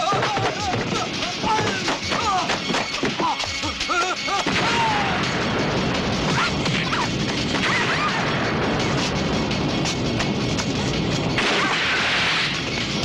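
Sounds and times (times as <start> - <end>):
shouted cries: 3.2 - 5.2
fire roaring and crackling: 4.5 - 13.0.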